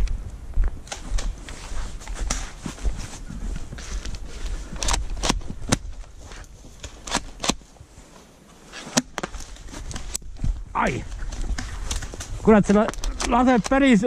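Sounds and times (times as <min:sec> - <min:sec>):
rustling in dry undergrowth: 0:00.0 - 0:14.0
sharp snaps and clicks: 0:11.4 - 0:13.9.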